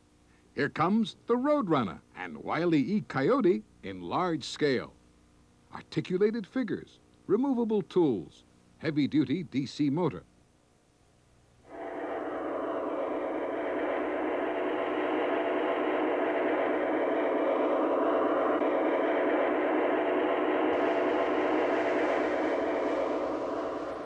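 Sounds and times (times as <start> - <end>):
model train running on track: 11.7 - 24.0.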